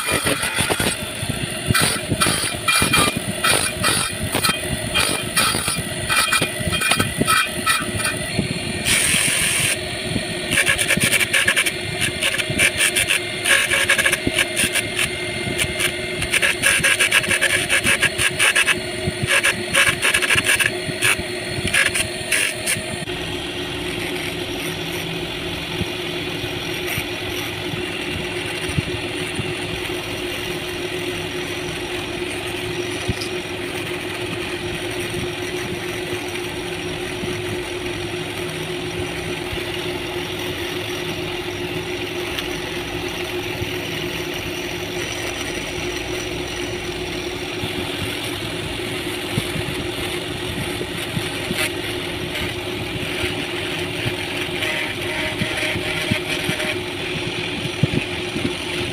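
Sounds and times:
wood grinding on sanding disc: 0.0 - 9.8, 10.4 - 23.1, 47.7 - 57.2
electric motor hum: 0.0 - 58.9.

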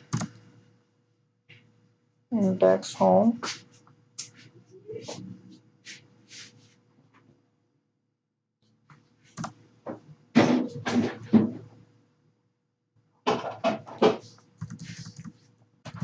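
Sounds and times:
keyboard typing: 0.0 - 0.5, 9.3 - 9.6, 14.0 - 16.0.

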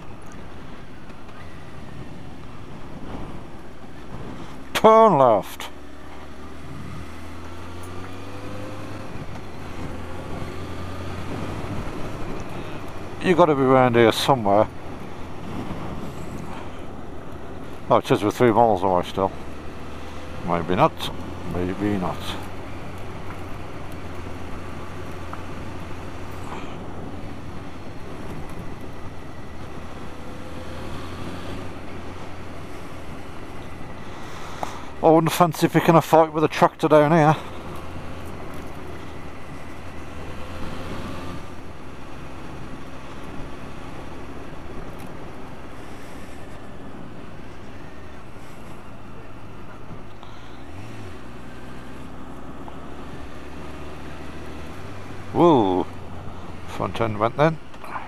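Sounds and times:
wind rushing on microphone: 0.0 - 5.4, 6.5 - 18.0
motorcycle engine cruising: 0.0 - 58.0
motorcycle engine running: 19.3 - 35.1.

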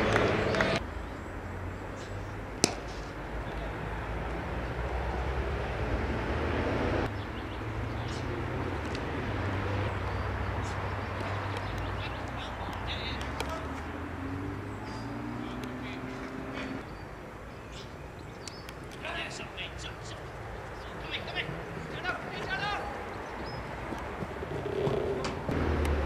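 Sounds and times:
open-air ambience with low hum: 0.0 - 26.0
cricket bat striking ball: 2.6 - 3.0.

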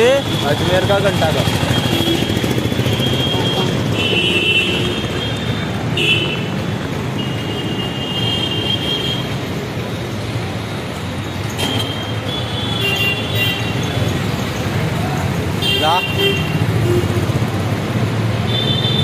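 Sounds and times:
motorcycles and scooters passing: 0.0 - 8.1, 13.2 - 19.0
steady traffic hum: 0.0 - 19.0.

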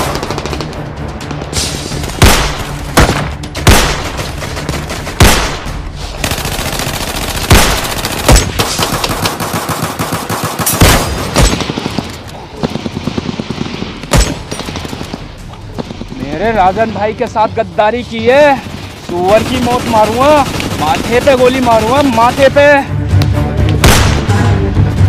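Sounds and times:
loud single gunshots: 2.2 - 4.2, 5.2 - 5.8, 23.8 - 24.4
rapid automatic gunfire: 6.2 - 14.0, 18.6 - 22.5.

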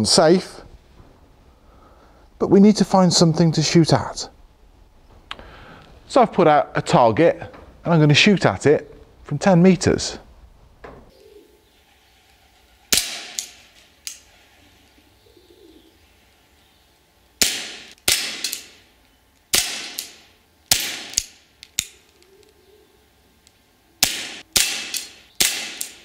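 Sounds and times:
pellet pistol shots: 12.9 - 13.6, 17.4 - 18.8, 19.5 - 21.4, 24.0 - 26.0.

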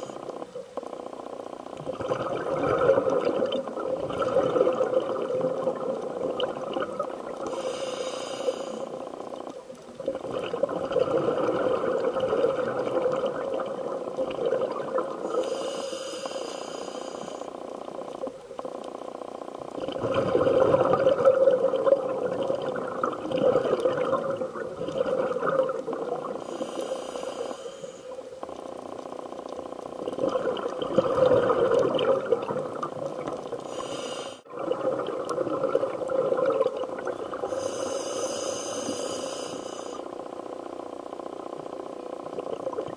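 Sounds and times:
gurgling exhaled bubbles: 0.0 - 7.7, 8.7 - 15.5, 17.4 - 27.0, 28.4 - 42.9
regulator inhale hisses: 7.4 - 9.1, 15.2 - 17.6, 26.4 - 28.3, 33.6 - 34.5, 37.4 - 40.1.

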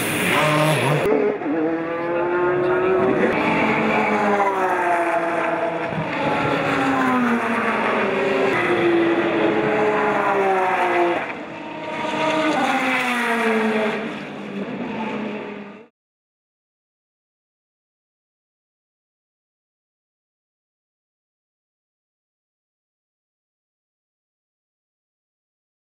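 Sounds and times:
race car engines passing: 0.0 - 15.9.

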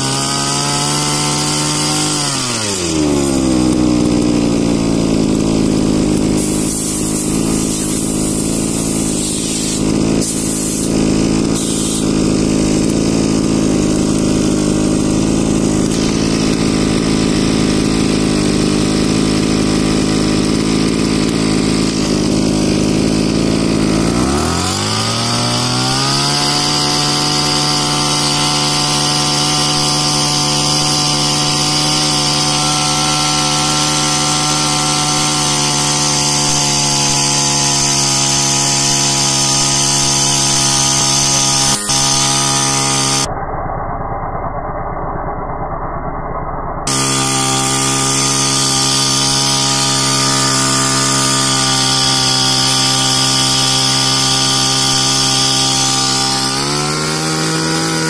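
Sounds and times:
small engine driving sprayer pump: 0.0 - 43.3, 46.9 - 58.0
water hissing through spray gun: 6.4 - 12.2.

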